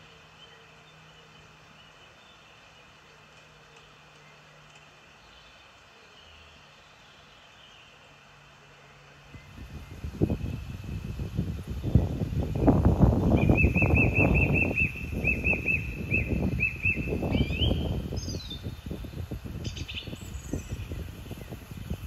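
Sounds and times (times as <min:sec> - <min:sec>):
wind buffeting microphone: 0:09.3 - 0:22.0
small bird calling: 0:13.2 - 0:22.0.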